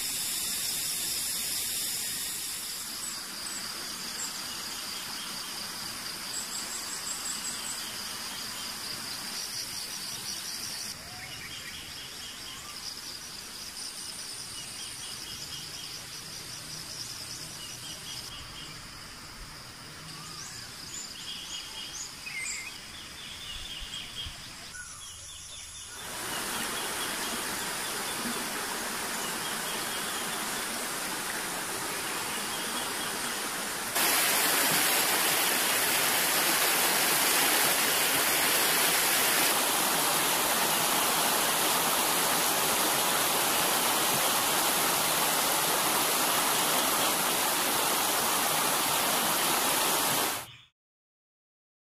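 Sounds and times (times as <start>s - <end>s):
insects calling: 0.0s - 50.7s
water rushing over rocks: 26.0s - 50.5s.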